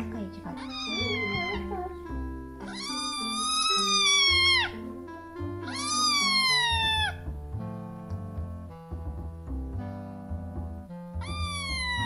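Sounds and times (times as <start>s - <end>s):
background music: 0.0s - 12.0s
kitten meowing: 0.5s - 5.0s, 5.6s - 7.3s, 11.1s - 12.0s.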